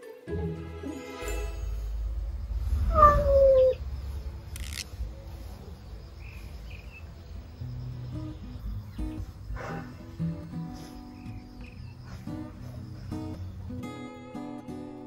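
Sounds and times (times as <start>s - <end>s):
cat hissing: 2.8s - 3.8s
cat yowling: 2.9s - 3.8s.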